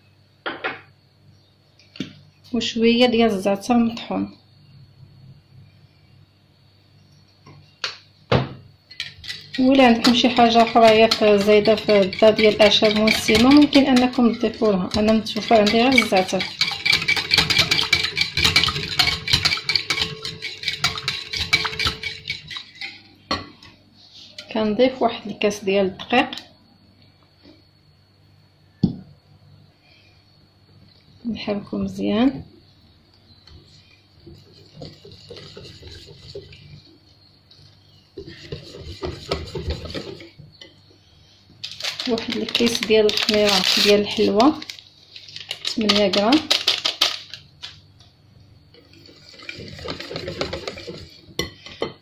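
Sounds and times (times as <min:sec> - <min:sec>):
whisk clinking against glass bowl: 0:09.0 - 0:23.4, 0:34.4 - 0:36.6.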